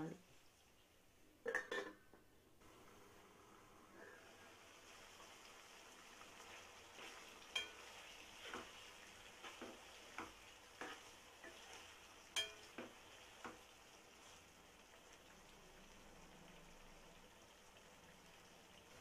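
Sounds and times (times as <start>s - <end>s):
faint sizzle: 0.0s - 19.0s
spoon clinking against pan: 7.5s - 7.8s, 12.4s - 12.9s.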